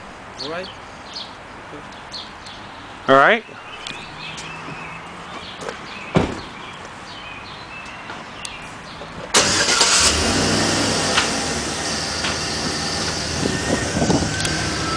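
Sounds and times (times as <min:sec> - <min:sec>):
thump: 0:06.1 - 0:06.5
vehicle engine running: 0:09.4 - 0:14.9.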